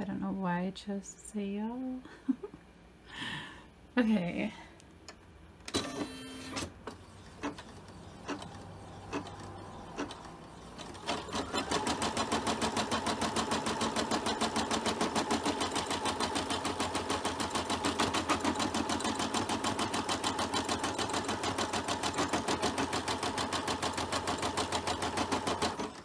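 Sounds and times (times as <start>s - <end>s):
embroidery machine stitching: 5.7s - 26.0s.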